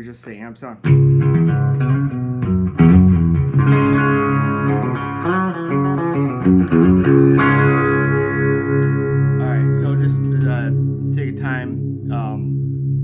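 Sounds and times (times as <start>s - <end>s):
electric guitar notes and chords: 0.8s - 13.0s.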